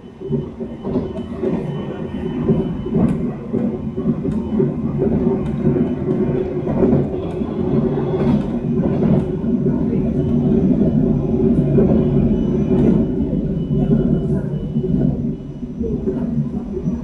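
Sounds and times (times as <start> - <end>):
train running rumble: 0.0 - 17.0.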